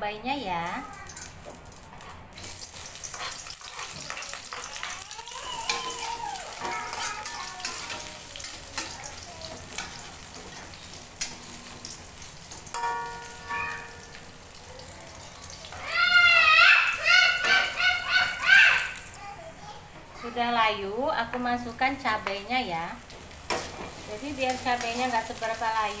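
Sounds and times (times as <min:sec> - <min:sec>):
onions sizzling in hot oil: 0:00.6 - 0:26.0
metal spatula scraping a pan: 0:02.1 - 0:14.3.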